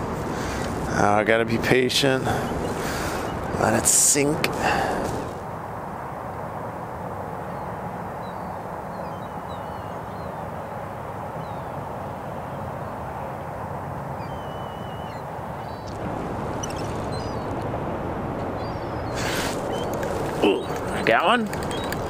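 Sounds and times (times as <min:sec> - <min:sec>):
riverside ambience: 0:00.0 - 0:22.0
faint bird calls: 0:00.3 - 0:00.8, 0:02.2 - 0:03.6, 0:07.5 - 0:10.6, 0:14.2 - 0:17.6, 0:18.5 - 0:22.0.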